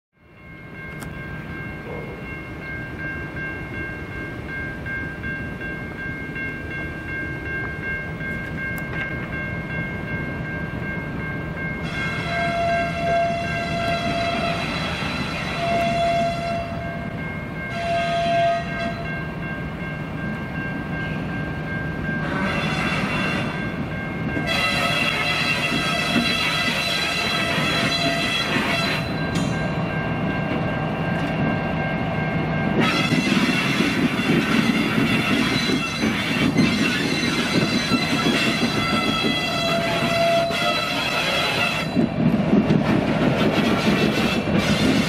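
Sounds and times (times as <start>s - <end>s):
freight locomotives running: 0.2s - 45.0s
locomotive horn blasts: 11.8s - 16.8s, 17.7s - 19.0s, 22.2s - 23.6s, 24.4s - 29.1s, 32.8s - 42.0s, 43.5s - 45.0s.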